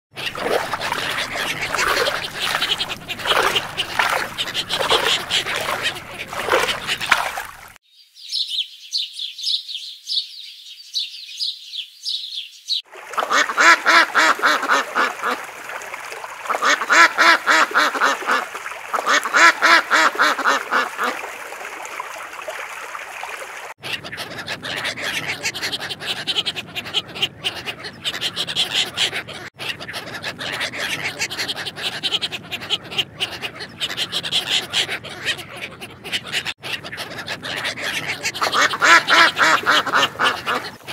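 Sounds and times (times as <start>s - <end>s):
ducks quacking: 0.1s - 7.8s, 13.1s - 21.2s, 23.8s - 40.9s
ducklings peeping: 0.2s - 7.4s, 23.8s - 40.9s
thin high duck calls: 0.2s - 7.7s, 16.5s - 21.2s, 23.8s - 40.9s.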